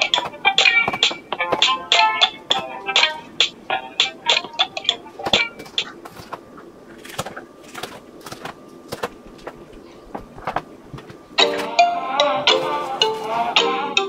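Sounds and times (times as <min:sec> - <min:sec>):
music with plucked notes: 0:00.0 - 0:05.9, 0:11.4 - 0:14.0.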